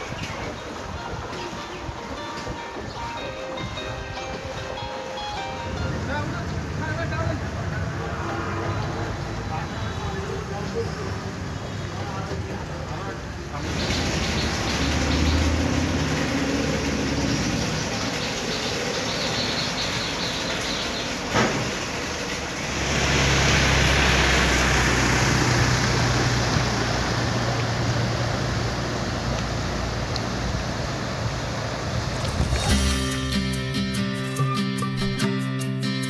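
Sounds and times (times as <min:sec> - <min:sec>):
mixed background noise: 0:00.0 - 0:33.3
vehicle engine humming: 0:00.0 - 0:34.2
wheels hissing through floodwater: 0:05.0 - 0:33.0.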